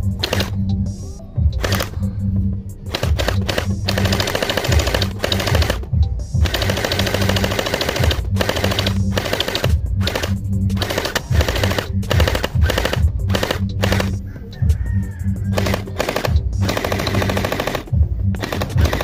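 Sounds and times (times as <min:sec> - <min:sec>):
background music: 0:00.0 - 0:19.0
toy blaster firing bursts: 0:00.2 - 0:00.6, 0:01.6 - 0:02.0, 0:02.9 - 0:14.2, 0:15.5 - 0:19.0.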